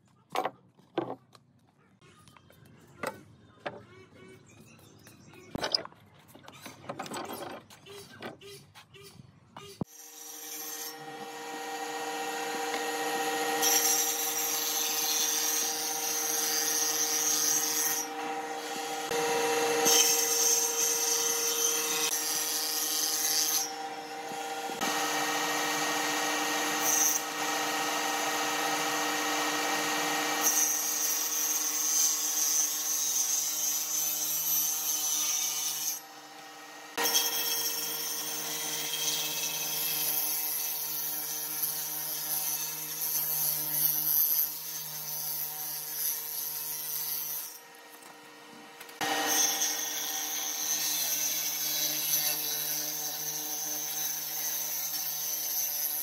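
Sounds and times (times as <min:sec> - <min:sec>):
rasping wood cutting: 0:09.8 - 0:56.0
power tool motor hum: 0:10.9 - 0:32.3.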